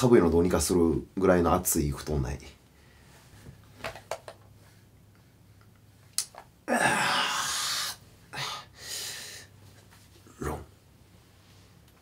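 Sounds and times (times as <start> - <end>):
man breathing out loudly: 6.7 - 9.5.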